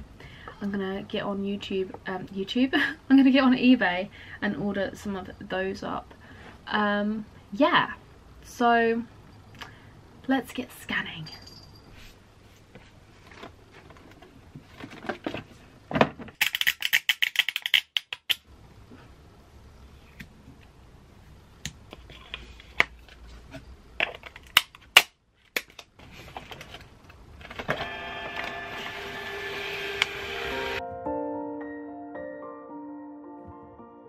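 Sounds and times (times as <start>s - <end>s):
plastic clicks and rattles: 16.3s - 18.4s
music: 30.8s - 34.0s.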